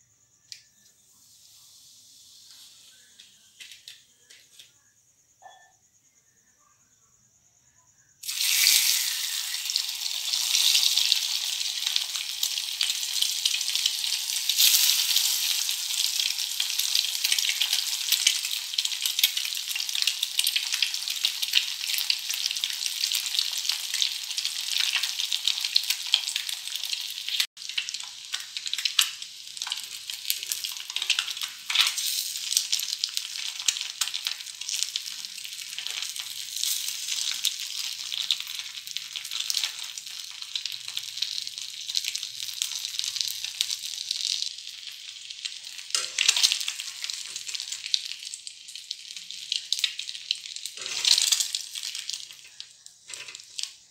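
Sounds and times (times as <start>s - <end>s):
eggs sizzling in hot oil: 0.0s - 4.1s, 8.1s - 53.9s.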